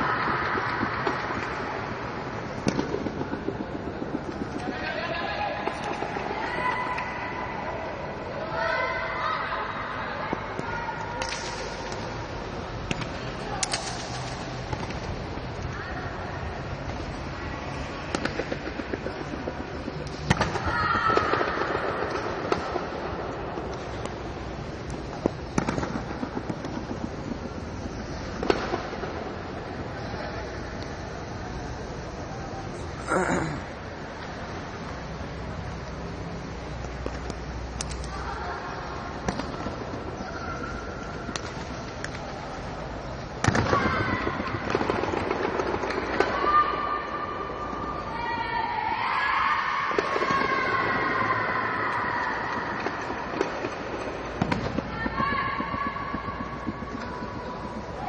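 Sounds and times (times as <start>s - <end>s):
voices in hall: 0.0s - 13.9s.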